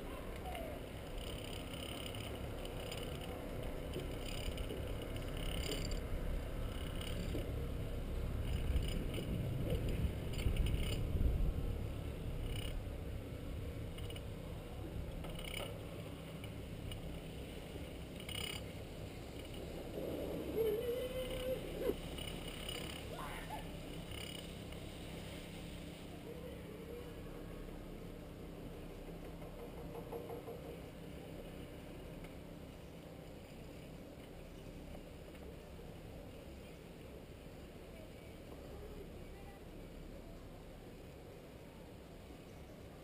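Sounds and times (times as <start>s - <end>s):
chairlift rumble: 0.0s - 29.7s.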